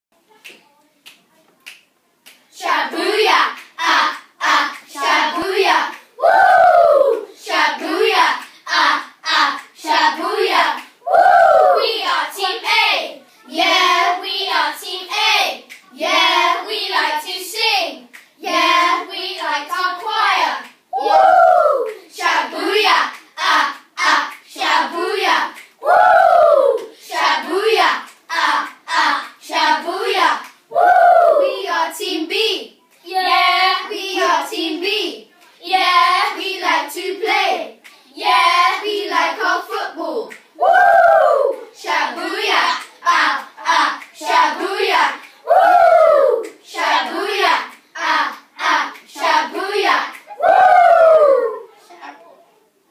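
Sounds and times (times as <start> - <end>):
boys chanting rap phrases: 26.3 - 30.4.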